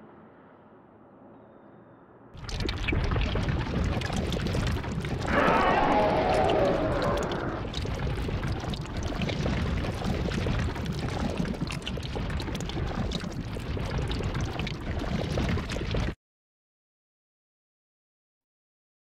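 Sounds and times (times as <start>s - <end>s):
liquid pouring: 2.4s - 16.2s.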